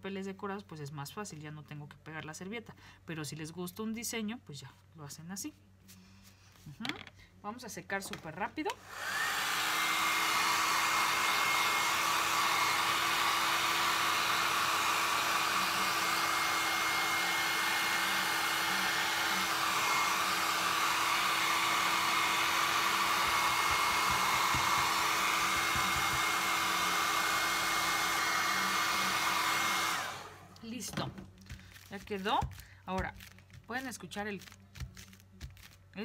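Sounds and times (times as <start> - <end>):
hair dryer running: 8.7 - 32.5.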